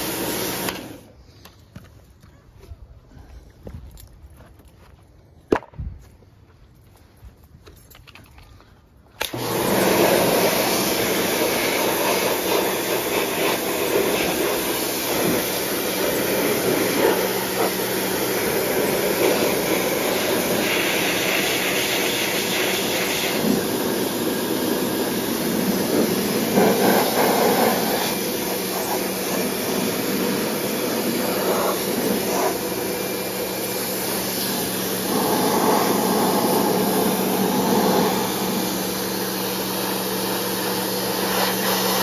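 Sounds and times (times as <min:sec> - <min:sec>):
pressure washer running: 0:00.0 - 0:01.1, 0:09.2 - 0:42.0
water jet blasting metal: 0:09.2 - 0:42.0.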